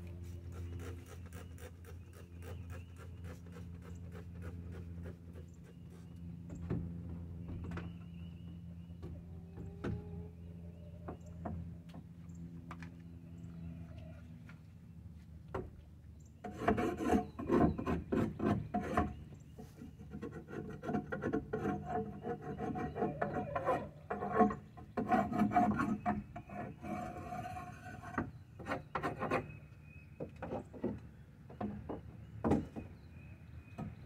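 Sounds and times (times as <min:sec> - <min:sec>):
scraper rasping on wood: 0:00.2 - 0:06.1, 0:16.4 - 0:19.2, 0:19.8 - 0:29.5.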